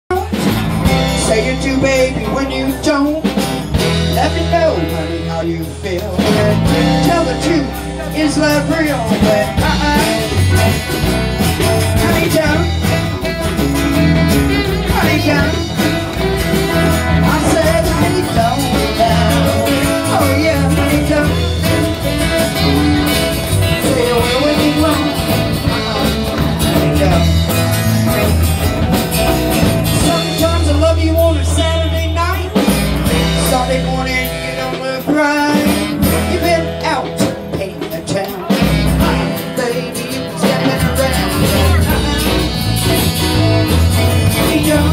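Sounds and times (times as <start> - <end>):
drums: 0.0 - 44.9
acoustic guitars: 0.1 - 44.9
saxophone: 9.8 - 30.0.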